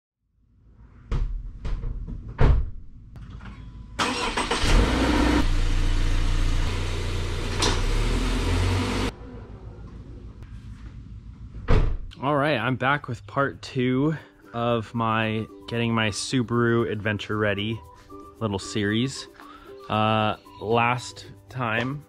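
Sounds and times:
car engine starting and running: 0:04.0 - 0:10.4.

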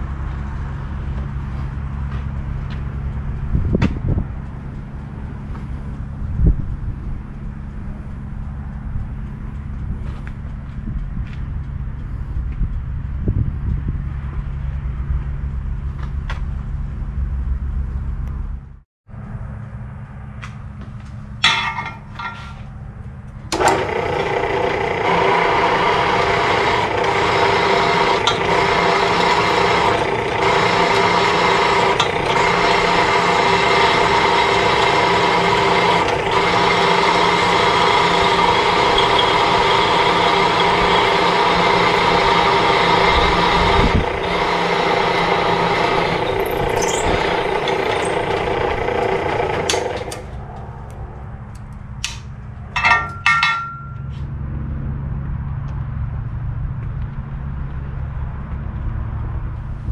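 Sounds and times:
drill press running: 0:23.5 - 0:50.4, 0:52.8 - 0:54.0.

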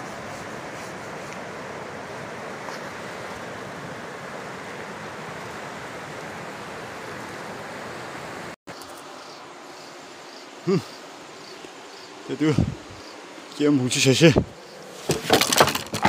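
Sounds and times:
river water rushing: 0:00.0 - 0:15.4
faint insect chirps: 0:07.7 - 0:15.1.

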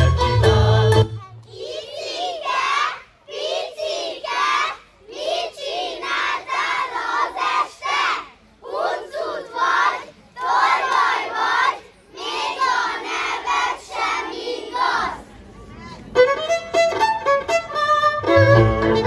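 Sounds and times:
children chanting in unison: 0:01.4 - 0:15.3.

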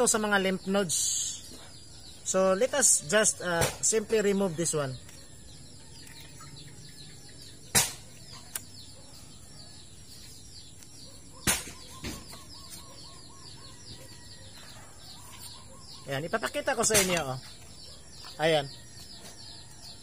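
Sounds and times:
small birds chirping: 0:00.0 - 0:20.0
sharp knocks of knife: 0:07.7 - 0:08.6, 0:11.4 - 0:12.4, 0:16.9 - 0:17.3.

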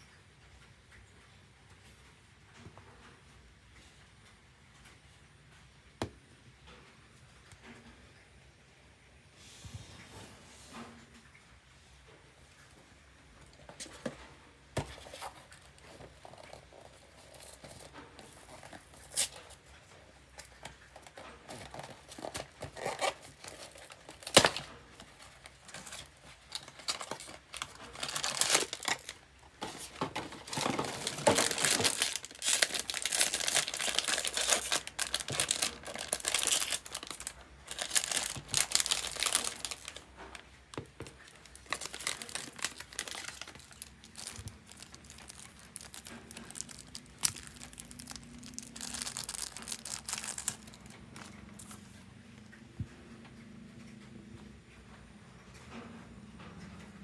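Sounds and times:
foil bag tearing and crinkling: 0:20.4 - 0:51.2.

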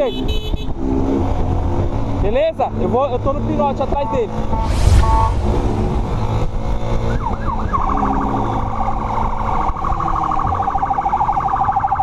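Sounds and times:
police siren wailing and yelping: 0:07.1 - 0:12.0.

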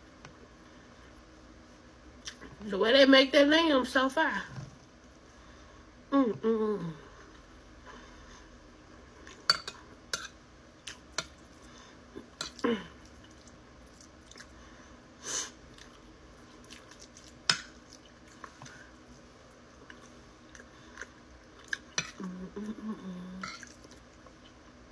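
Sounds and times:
chewing and mouth sounds: 0:12.3 - 0:14.6, 0:15.7 - 0:22.3.

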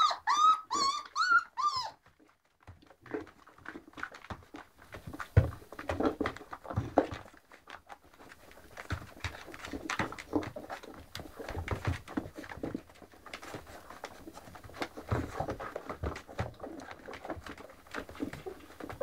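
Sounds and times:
puppies squeaking and whimpering: 0:00.0 - 0:02.0
soft taps and shuffling: 0:02.0 - 0:19.0.

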